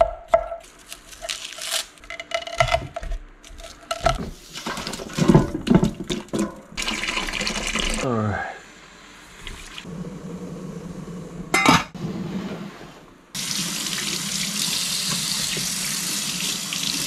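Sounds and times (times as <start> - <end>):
water pouring into pot: 6.8 - 8.0.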